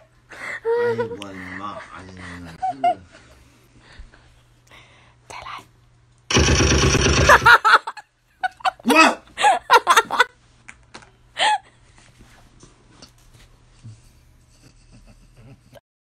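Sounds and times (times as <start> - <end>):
loud droning: 6.3 - 7.5.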